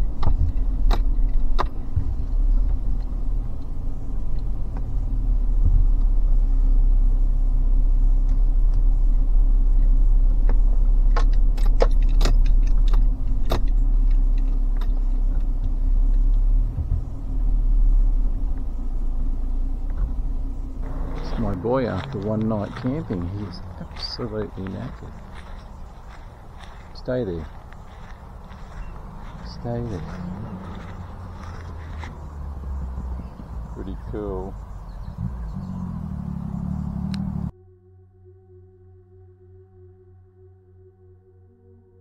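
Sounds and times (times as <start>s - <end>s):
vehicle engine and road rumble: 0.0s - 37.6s
constant hum: 0.0s - 38.4s
sharp clicks and rattles: 9.7s - 17.2s.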